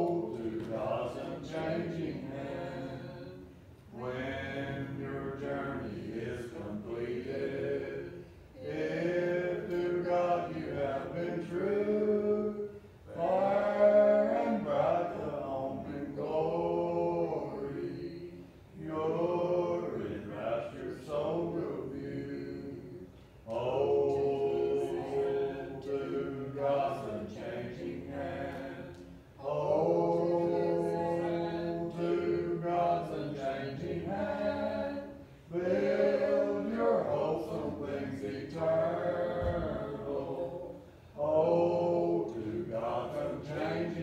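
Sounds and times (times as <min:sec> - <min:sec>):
congregation singing a hymn: 0:00.0 - 0:44.0.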